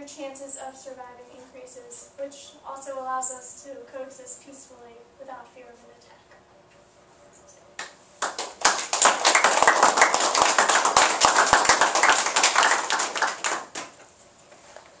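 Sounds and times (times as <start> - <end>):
audience applauding: 8.2 - 14.0.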